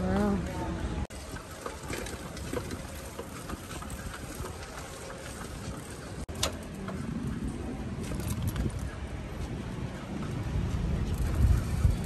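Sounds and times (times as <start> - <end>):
road rumble: 0.0 - 12.0
wind noise: 7.0 - 12.0
light rattles and clicks: 8.0 - 12.0.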